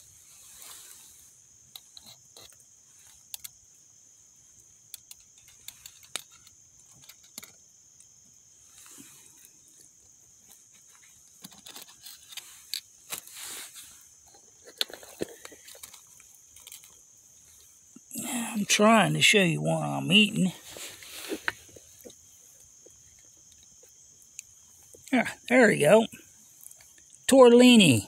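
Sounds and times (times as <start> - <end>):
wood fire crackling: 4.5 - 25.5.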